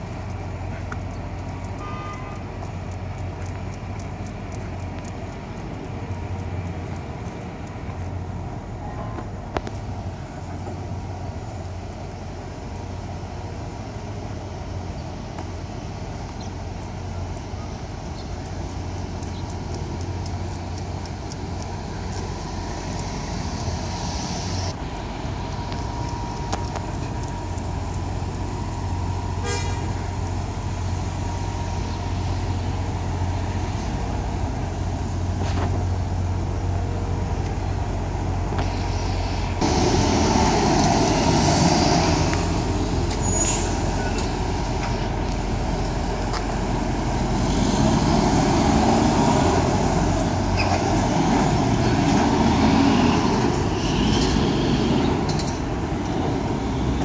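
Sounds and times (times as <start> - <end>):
street traffic hum: 0.0 - 57.0
hiss: 17.5 - 26.4, 38.6 - 55.4.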